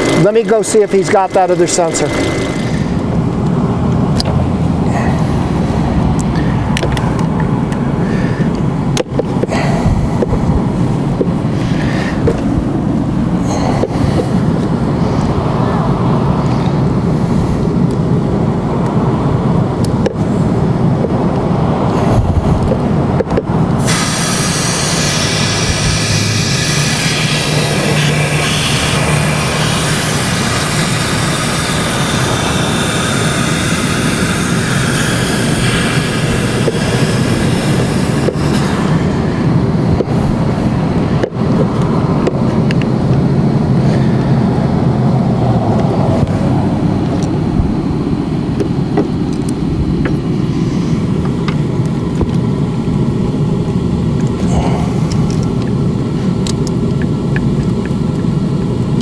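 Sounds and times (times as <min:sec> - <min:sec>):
mechanical running noise: 0:00.0 - 0:04.9, 0:22.2 - 0:43.3
hiss: 0:23.8 - 0:39.0.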